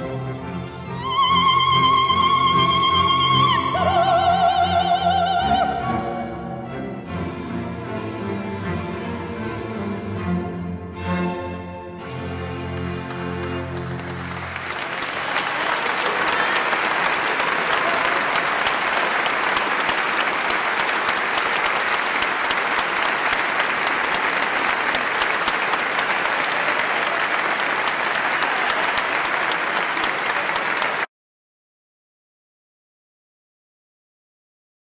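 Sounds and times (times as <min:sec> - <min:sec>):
audience applause: 0:12.8 - 0:31.1.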